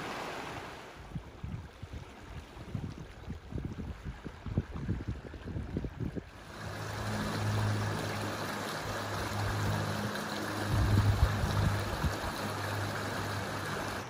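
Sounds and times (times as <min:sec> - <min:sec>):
low hum: 0:06.2 - 0:14.0
river water rushing: 0:06.3 - 0:14.0.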